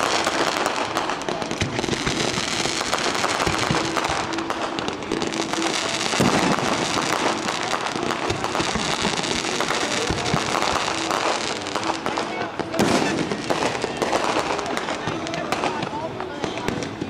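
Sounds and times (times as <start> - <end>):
loud firework burst: 0.0 - 15.9
fireworks crackling: 0.0 - 17.0.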